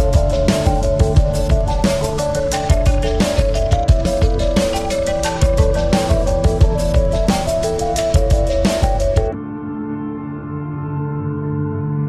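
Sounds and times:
music with drum beat: 0.0s - 9.4s.

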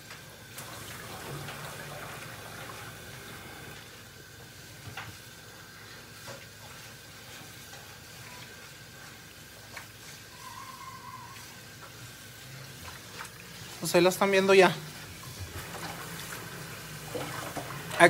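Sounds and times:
tap water splashing: 0.0s - 5.3s, 6.2s - 10.2s, 12.7s - 13.8s, 14.9s - 18.0s.

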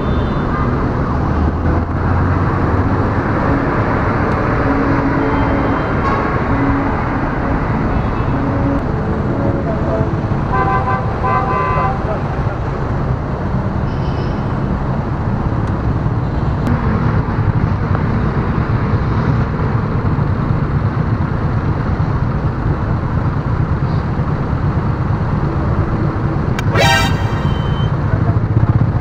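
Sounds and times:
road traffic: 0.0s - 28.9s
brief high-pitched tone: 26.6s - 28.0s.

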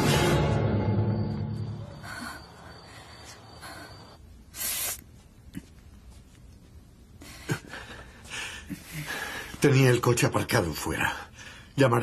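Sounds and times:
soft breaths: 2.0s - 6.4s, 7.0s - 9.7s
sharp hissing intake of breath: 4.5s - 5.0s.

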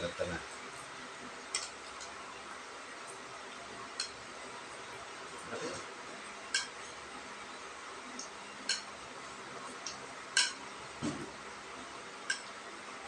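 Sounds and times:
steady low hiss: 0.0s - 13.0s
spoon clinking against bowl: 8.7s - 8.9s.

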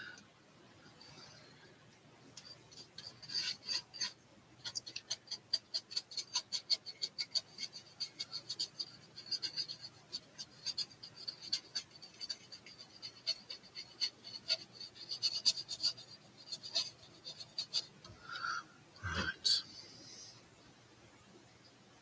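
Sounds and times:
paintbrush scratchy strokes: 2.4s - 18.1s.

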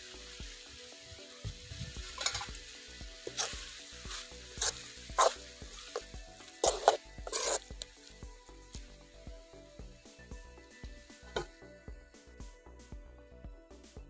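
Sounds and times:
faint sizzling: 0.0s - 12.3s
spoon scraping a pan: 2.0s - 7.9s.

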